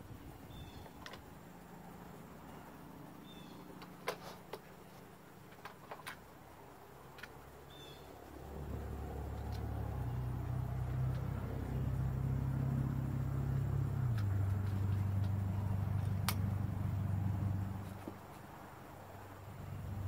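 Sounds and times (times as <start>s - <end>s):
engine running: 6.8s - 20.0s.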